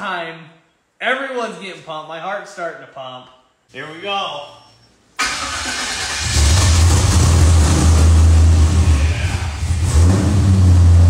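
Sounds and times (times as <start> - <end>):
car engine starting and running: 5.2 - 11.0.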